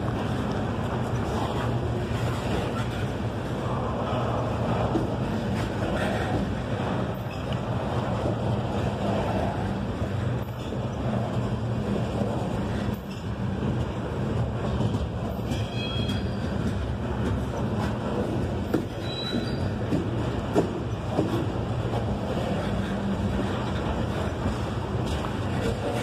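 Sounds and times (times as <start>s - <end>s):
steel wheels rumbling on rail: 0.0s - 26.0s
high wheel squeals: 15.4s - 16.6s, 18.9s - 19.9s.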